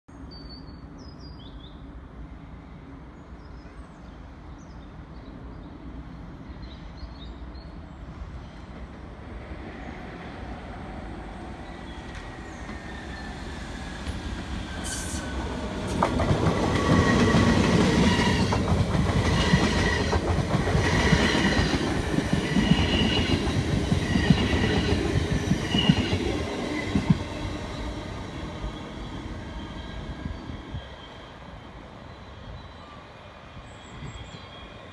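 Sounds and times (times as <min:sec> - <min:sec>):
train wheels rumbling on rails: 0:08.3 - 0:31.3.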